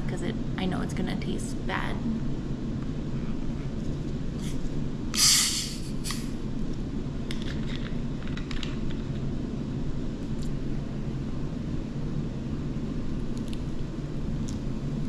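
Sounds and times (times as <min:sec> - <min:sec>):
steady low hum: 0:00.0 - 0:15.0
carbonation hissing from bottle: 0:05.2 - 0:06.3.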